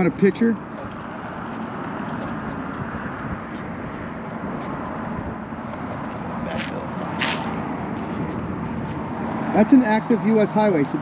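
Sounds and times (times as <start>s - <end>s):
road traffic rushing: 0.0s - 11.0s.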